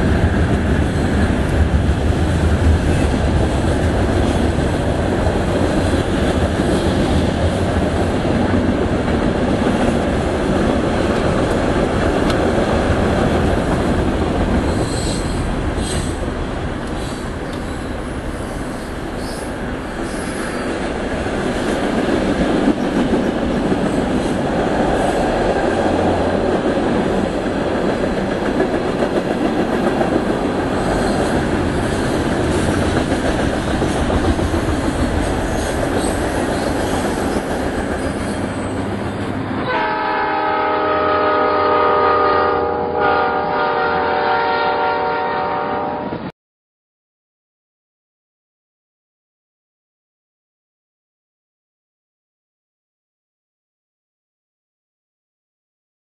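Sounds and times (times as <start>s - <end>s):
train horn chord: 39.6s - 46.3s.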